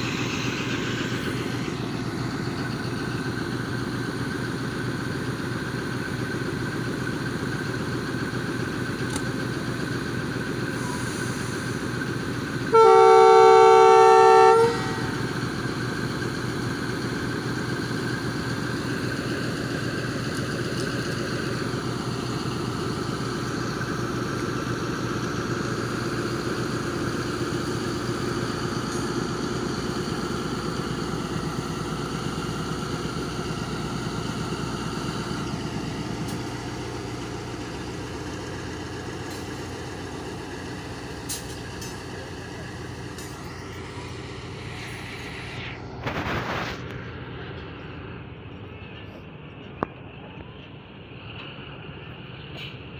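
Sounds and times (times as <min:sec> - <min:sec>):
diesel locomotive engine idling: 0:00.0 - 0:52.9
locomotive horn blast: 0:12.6 - 0:15.3.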